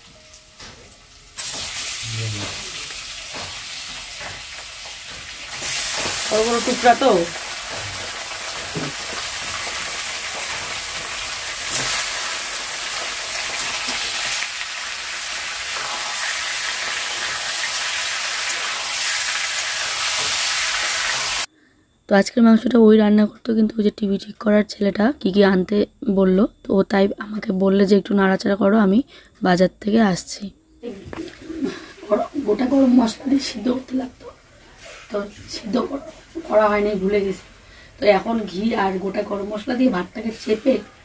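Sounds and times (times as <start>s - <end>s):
chicken sizzling in hot oil: 0.0s - 21.5s.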